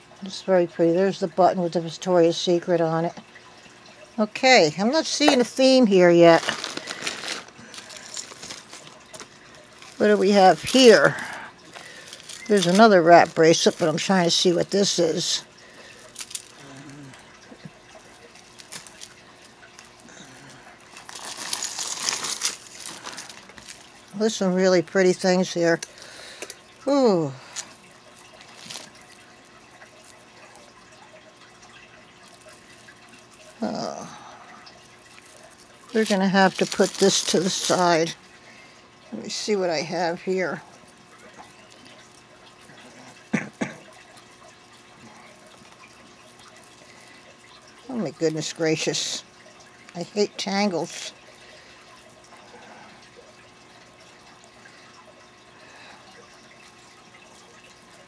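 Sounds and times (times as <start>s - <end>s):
plastic bag rustling: 5.1s - 26.2s, 27.6s - 30.7s, 34.7s - 38.2s
beads and chains rattling: 5.2s - 17.0s, 20.9s - 24.5s, 35.1s - 38.2s
beaded necklaces clicking together: 16.0s - 16.6s.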